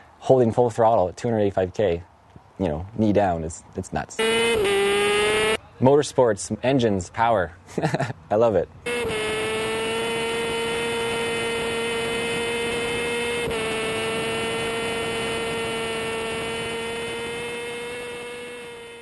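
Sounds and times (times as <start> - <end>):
motorcycle engine at high revs: 4.2 - 5.6, 8.8 - 19.0.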